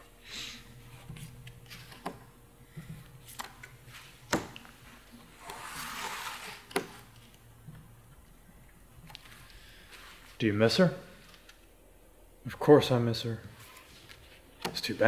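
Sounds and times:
cards sliding and rustling: 0:00.8 - 0:02.2, 0:03.1 - 0:07.4.

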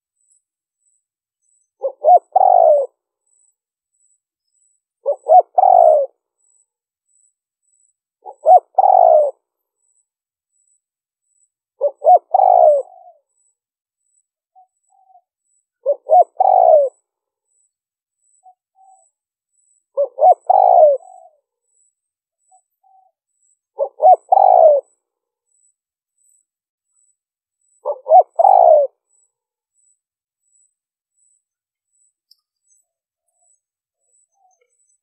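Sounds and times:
dove cooing: 0:01.8 - 0:03.0, 0:05.0 - 0:06.2, 0:08.2 - 0:09.4, 0:11.8 - 0:13.3, 0:14.6 - 0:17.0, 0:20.0 - 0:21.4, 0:23.8 - 0:24.9, 0:27.8 - 0:29.0.

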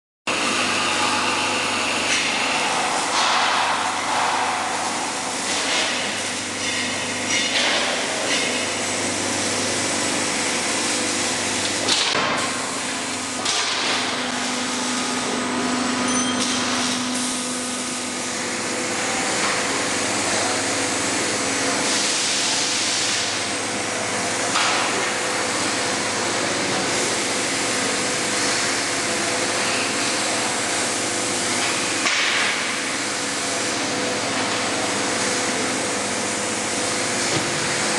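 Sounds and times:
machinery hum and hiss: 0:00.3 - 0:37.9
low machine whine: 0:07.8 - 0:21.7.

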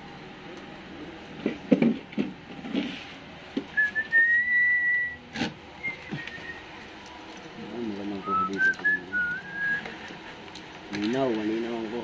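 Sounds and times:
person whistling long note: 0:03.8 - 0:05.2, 0:08.2 - 0:09.8.

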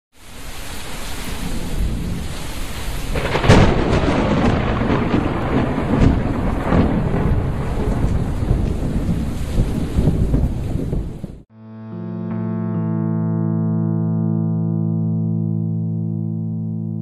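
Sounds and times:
rain hiss: 0:00.2 - 0:11.3
thunder cracking and rumbling: 0:01.3 - 0:11.5.

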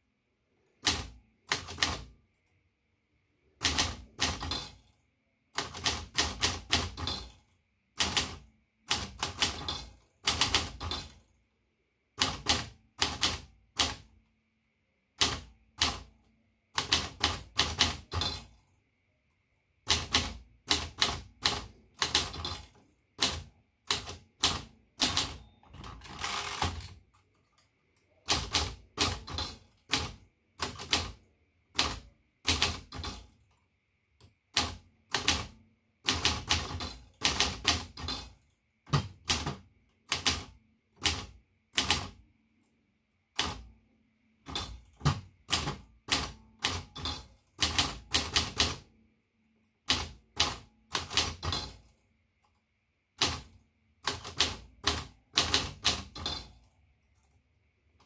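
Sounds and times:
typewriter typebar strikes: 0:03.6 - 0:04.8, 0:05.6 - 0:07.3, 0:08.0 - 0:11.2, 0:15.2 - 0:16.1, 0:16.8 - 0:18.5, 0:19.8 - 0:27.0, 0:28.2 - 0:31.2, 0:31.8 - 0:33.2, 0:38.9 - 0:42.2, 0:44.4 - 0:48.8
typewriter margin bell ring: 0:25.0 - 0:26.8.

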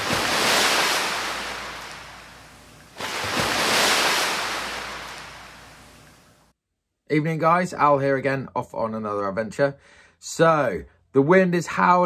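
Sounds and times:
waves breaking and washing out: 0:00.0 - 0:06.4.

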